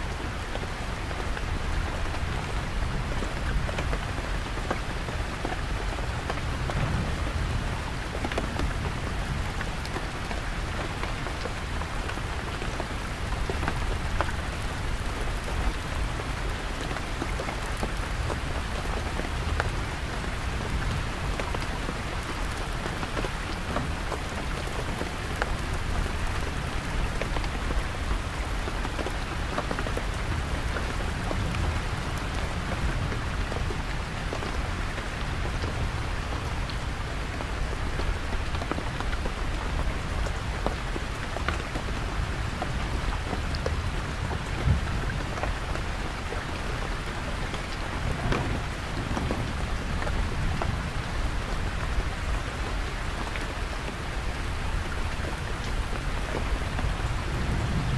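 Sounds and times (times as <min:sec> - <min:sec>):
heavy rain on a tent: 0:00.0 - 0:57.9
distant thunder rumble: 0:56.9 - 0:57.9.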